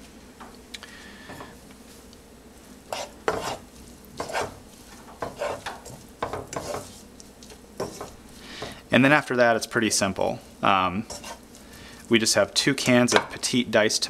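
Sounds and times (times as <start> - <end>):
onions sizzling in oil: 0.9 - 14.0
spatula scraping frying pan: 2.9 - 8.9, 10.5 - 12.0, 12.6 - 13.4.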